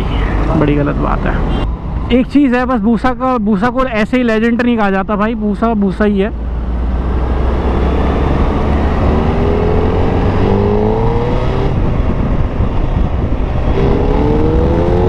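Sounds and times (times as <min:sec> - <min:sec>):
wind and road noise: 0:00.0 - 0:15.0
motorcycle engine accelerating: 0:06.4 - 0:15.0.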